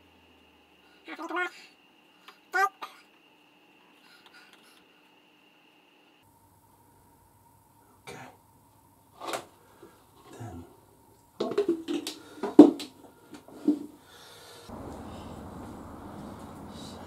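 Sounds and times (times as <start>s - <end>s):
plastic jug clicks and clunks: 11.4s - 12.9s.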